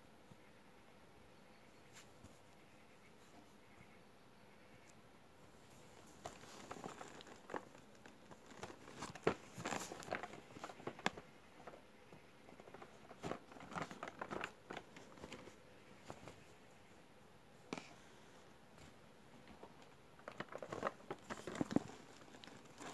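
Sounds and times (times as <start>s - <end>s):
cardboard box crinkling and tapping: 5.9s - 16.4s, 18.8s - 22.9s.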